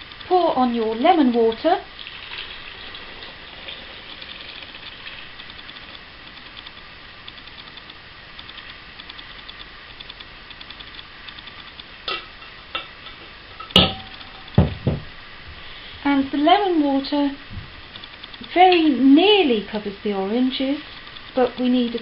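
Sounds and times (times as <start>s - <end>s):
water trickling through a sieve: 0.8s - 6.0s
metal pans knocking: 12.1s - 15.0s
metal ringing: 12.1s - 15.0s.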